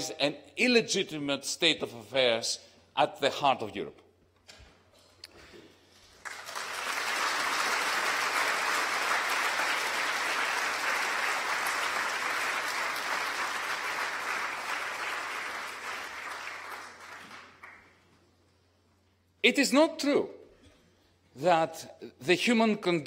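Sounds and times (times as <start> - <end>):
audience applauding: 6.1 - 18.1.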